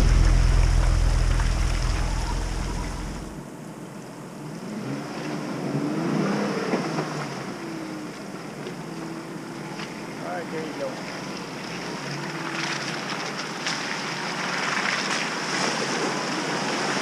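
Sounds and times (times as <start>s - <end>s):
car engine revving: 0.0s - 3.4s
wind rumble on microphone: 0.0s - 3.4s.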